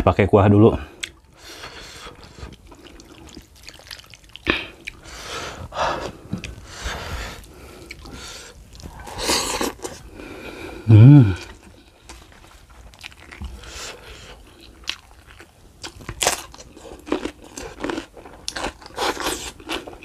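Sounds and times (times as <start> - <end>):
broth pouring and splashing: 2.6 - 4.5.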